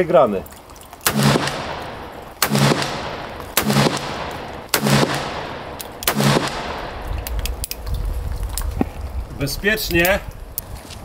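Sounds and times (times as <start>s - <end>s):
revolver gunshots echoing: 1.0s - 7.2s.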